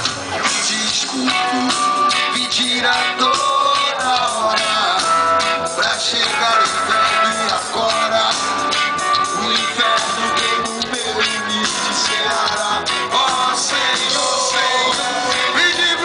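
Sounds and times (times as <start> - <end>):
rock band playing live: 0.0 - 16.0
steady drum beat: 0.0 - 16.0.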